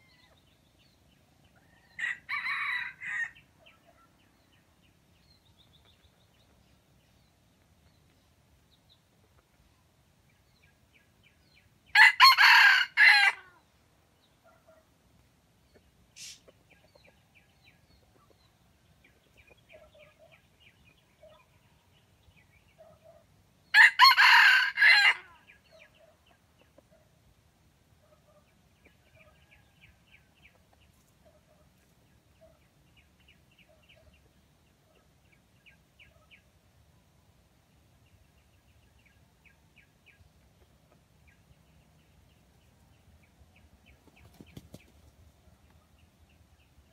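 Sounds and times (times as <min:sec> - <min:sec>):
rooster crowing: 0:01.9 - 0:03.4, 0:12.0 - 0:13.6, 0:23.8 - 0:25.3
faint bird calls: 0:15.7 - 0:17.0.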